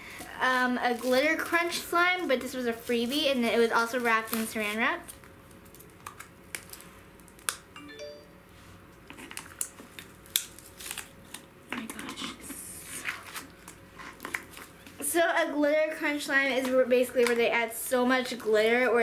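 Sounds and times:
cling wrap crinkling: 0.7s - 7.6s, 9.1s - 11.5s
electronic chime: 7.8s - 8.5s.

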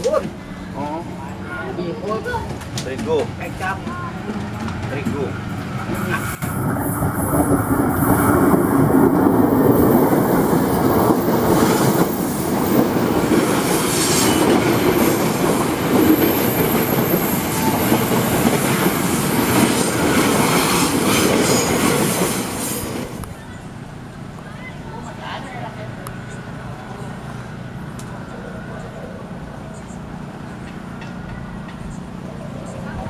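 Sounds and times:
train wheels rumbling on rail: 0.0s - 33.0s
high wheel squeal: 13.7s - 15.5s, 16.1s - 22.9s.

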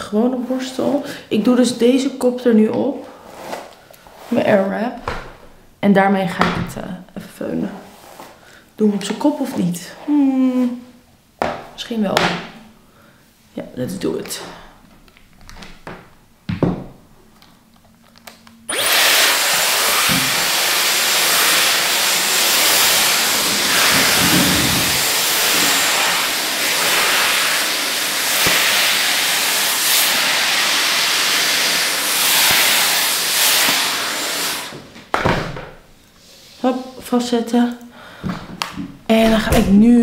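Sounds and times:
hair styler blowing air: 18.7s - 34.9s.

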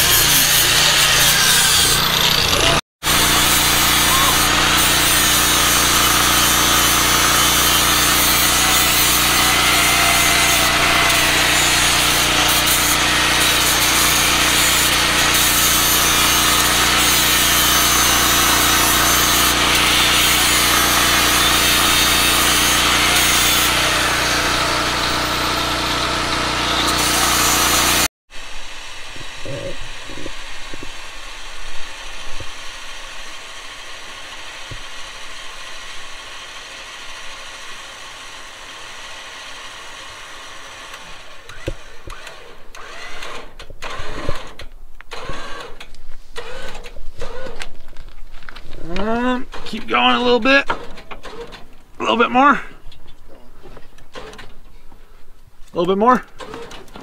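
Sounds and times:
angle grinder grinding steel: 0.0s - 44.5s.

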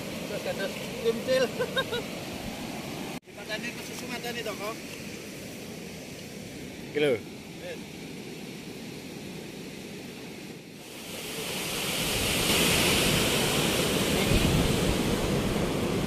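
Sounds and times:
wind buffeting microphone: 11.8s - 16.0s.

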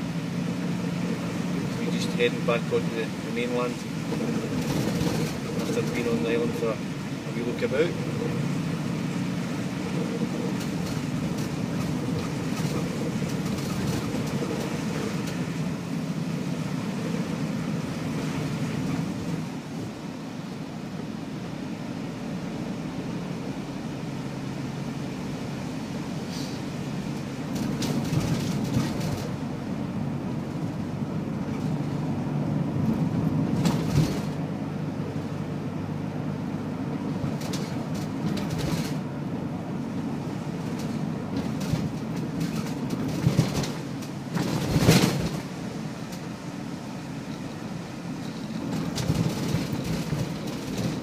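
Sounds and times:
tyre noise on wet road: 0.0s - 51.0s
van engine and road rumble: 0.0s - 51.0s.

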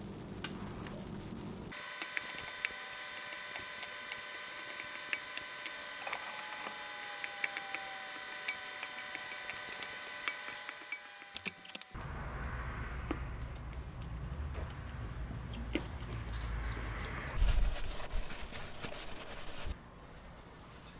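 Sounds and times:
steady high hum: 0.0s - 19.8s
low rumbling room noise: 12.0s - 20.9s.

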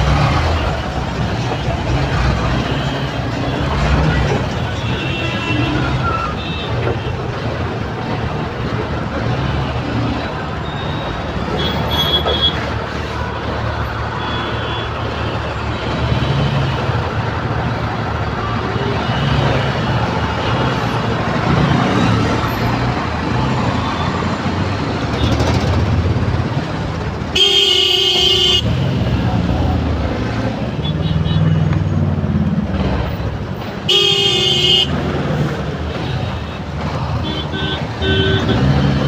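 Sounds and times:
traffic engine hum and road noise: 0.0s - 39.0s
loud vehicle horn: 4.6s - 7.2s, 11.5s - 12.7s, 27.3s - 29.0s, 33.8s - 35.0s, 37.2s - 39.0s.

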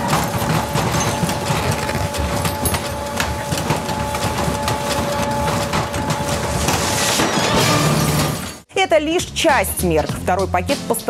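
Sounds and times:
photocopier hum: 0.0s - 7.2s.

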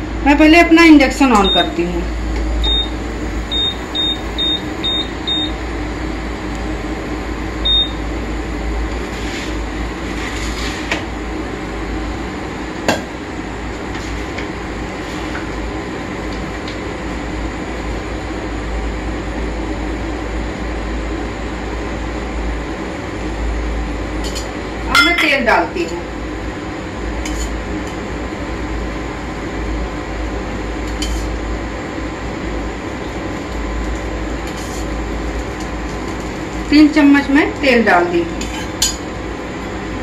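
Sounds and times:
cooling fan humming: 0.0s - 40.0s
short high beeps of cooktop: 24.9s - 25.3s.

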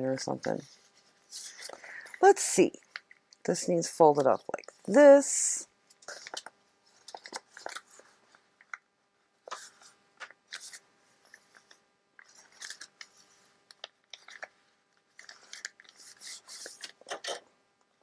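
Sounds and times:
paper rustling and crinkling: 0.3s - 2.3s, 6.0s - 8.4s, 9.4s - 17.4s.

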